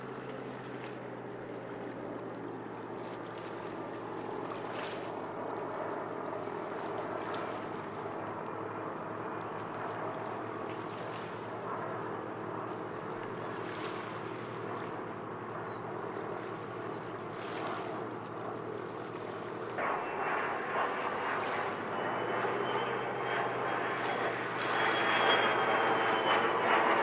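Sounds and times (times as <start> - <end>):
faint engine whine: 0.0 - 27.0
radial engines running: 19.8 - 27.0.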